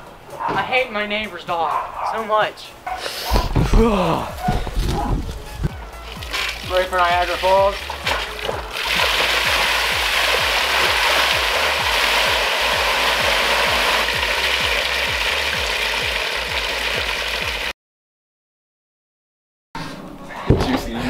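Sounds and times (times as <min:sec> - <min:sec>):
water pouring and splashing: 0:04.4 - 0:17.7.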